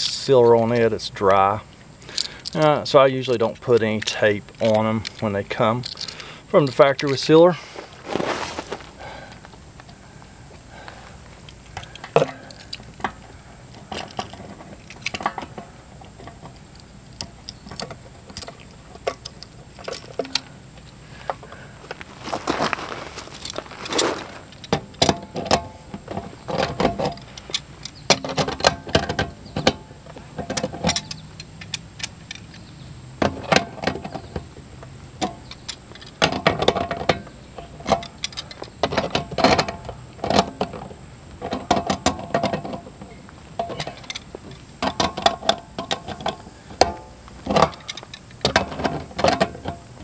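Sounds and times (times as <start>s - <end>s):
metal tools clanking on valve: 2.0s - 5.2s, 5.8s - 6.3s, 11.8s - 13.2s, 30.4s - 31.5s, 43.6s - 44.2s.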